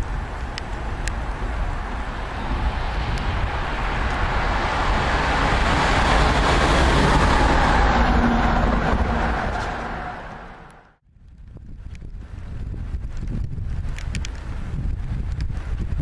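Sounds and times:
train wheel and rail noise: 0.0s - 11.0s.

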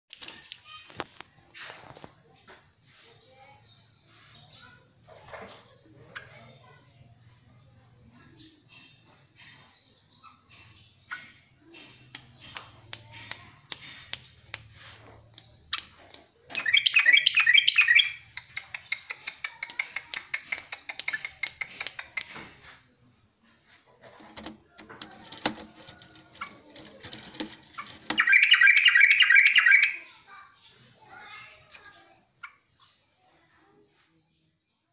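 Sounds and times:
bird harsh chattering calls: 8.3s - 22.4s, 26.4s - 33.0s
bird quick sharp ticks: 12.1s - 22.4s.

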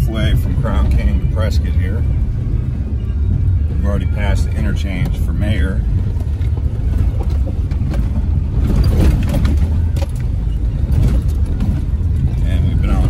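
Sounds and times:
engine and tyres rumbling: 0.0s - 13.0s
rattles and knocks: 4.8s - 13.0s.

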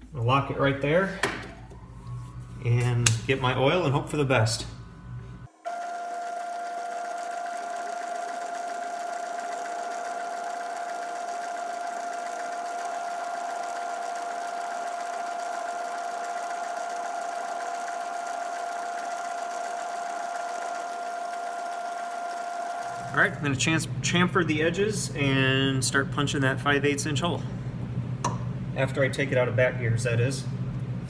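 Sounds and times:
metal lathe whining: 1.2s - 23.7s.

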